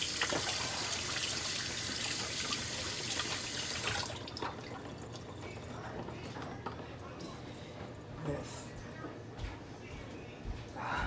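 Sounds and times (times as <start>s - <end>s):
water running from a tap: 0.0s - 5.5s.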